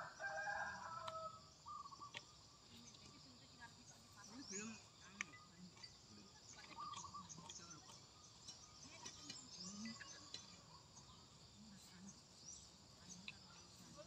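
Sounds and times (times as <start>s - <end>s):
birds chirping: 0.0s - 14.0s
insects chirping: 0.0s - 14.0s
soft ticks: 1.0s - 1.2s.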